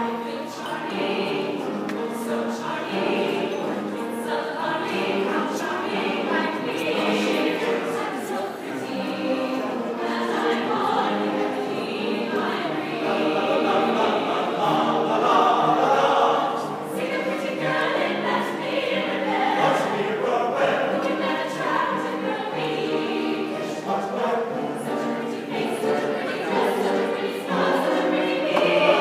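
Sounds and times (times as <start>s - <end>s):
choir singing sustained chords: 0.0s - 29.0s.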